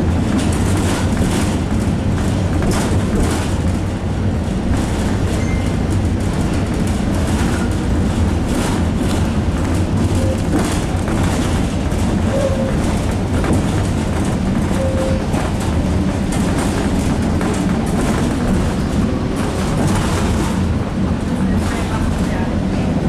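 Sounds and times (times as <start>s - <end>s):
tram rumbling and rattling: 0.0s - 23.0s
tram wheels squeaking: 4.6s - 22.5s.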